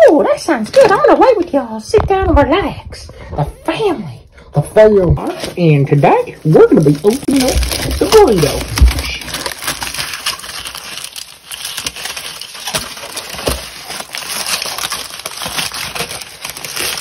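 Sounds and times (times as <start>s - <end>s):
foil wrapper crinkling: 5.2s - 17.0s.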